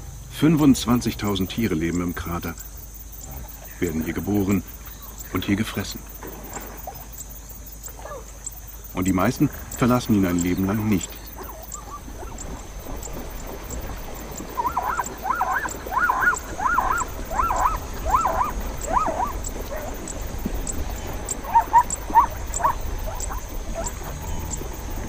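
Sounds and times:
zebra barking calls: 7.9 - 25.0.

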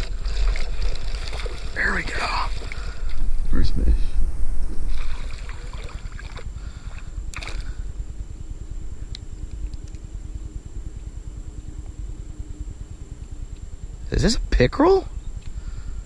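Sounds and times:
water splashing and sloshing: 0.0 - 3.7, 4.6 - 7.8
wind rumbling on microphone: 0.0 - 16.0.

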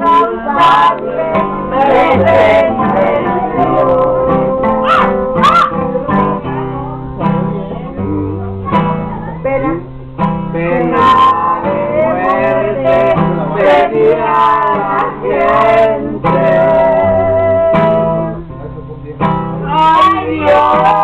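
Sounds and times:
person singing: 0.0 - 7.1, 10.5 - 18.4, 19.6 - 21.0
acoustic guitar strumming: 0.0 - 21.0.

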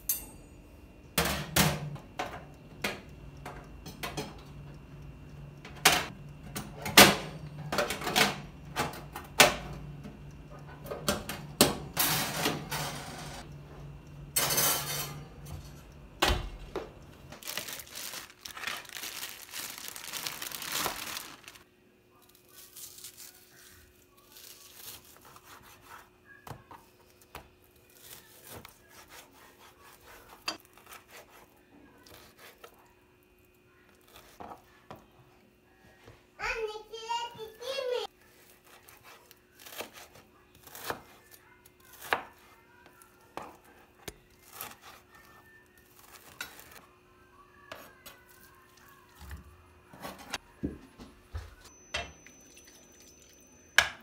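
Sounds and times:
dishes and utensils clinking: 0.0 - 0.6, 14.3 - 15.9, 51.7 - 54.0.

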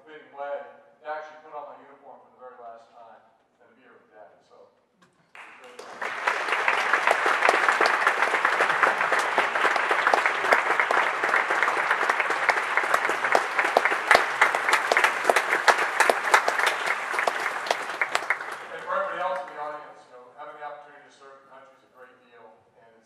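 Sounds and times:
audience applauding: 5.3 - 19.8.

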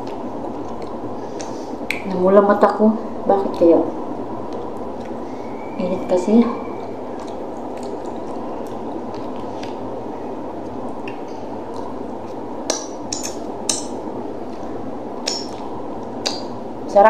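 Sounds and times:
steady background hum: 0.0 - 17.0
wet mouth smacks: 7.2 - 9.8, 10.9 - 13.5, 14.5 - 16.5.

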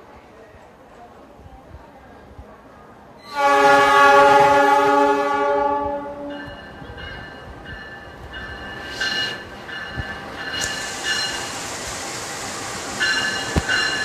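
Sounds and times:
locomotive air horn blast: 3.2 - 6.4
train wheels squealing: 6.3 - 11.6, 13.0 - 14.0.

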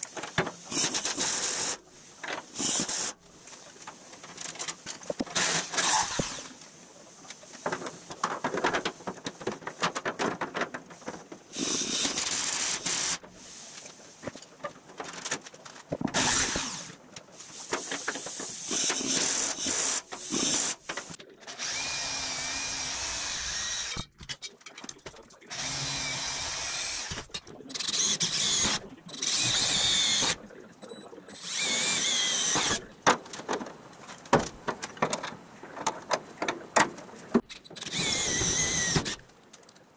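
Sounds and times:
power drill drilling into metal: 16.2 - 16.9, 21.6 - 24.1, 25.5 - 27.3, 28.0 - 30.4, 31.5 - 32.8, 37.9 - 39.2.

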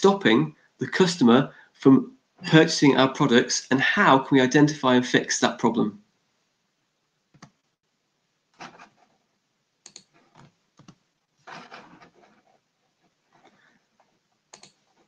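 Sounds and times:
typing on computer keyboard: 14.5 - 14.8.

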